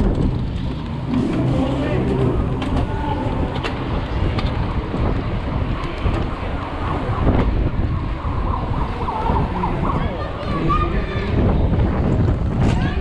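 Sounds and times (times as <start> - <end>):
bike knocking and rattling: 0.0 - 8.0, 11.4 - 13.0
wind buffeting microphone: 0.0 - 13.0.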